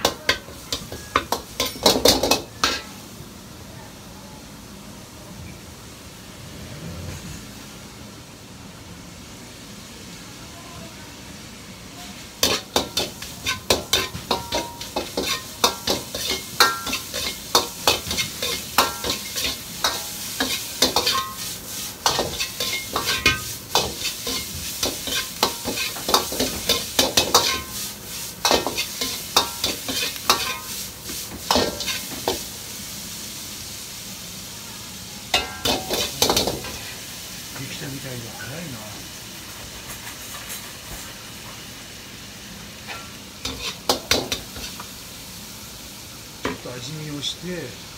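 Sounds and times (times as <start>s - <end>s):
food sizzling: 0.0s - 47.9s
metal utensil scraping frying pan: 12.4s - 30.8s, 42.8s - 44.8s.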